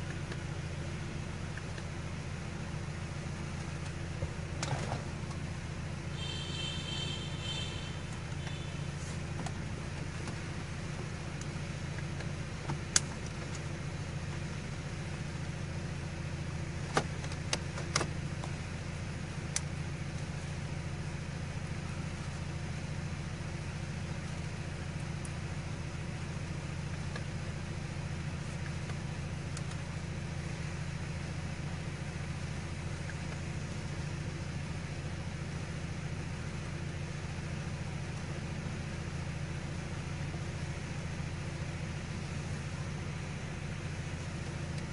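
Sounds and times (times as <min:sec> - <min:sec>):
car engine idling: 0:00.0 - 0:44.9.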